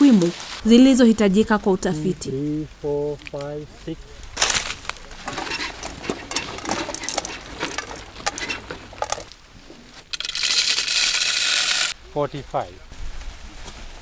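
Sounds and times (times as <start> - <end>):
maize kernels rattling: 4.4 - 9.4, 10.1 - 12.0
kernels pouring into a cup: 10.1 - 11.9.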